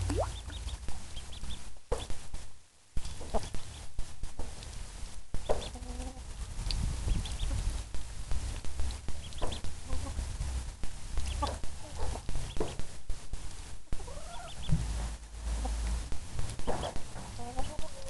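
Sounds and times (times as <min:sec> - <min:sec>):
ducklings peeping: 0:00.0 - 0:02.3, 0:03.0 - 0:04.7, 0:05.3 - 0:12.9, 0:13.9 - 0:18.0
hens clucking: 0:09.2 - 0:10.3, 0:11.2 - 0:12.8, 0:14.0 - 0:14.8, 0:15.4 - 0:16.0, 0:16.7 - 0:18.0.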